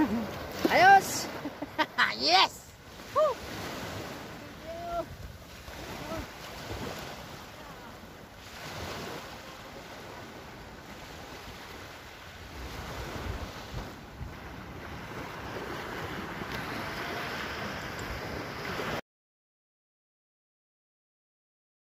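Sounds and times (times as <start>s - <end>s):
surf washing onto beach: 0.0s - 19.0s
wind buffeting microphone: 4.6s - 7.2s.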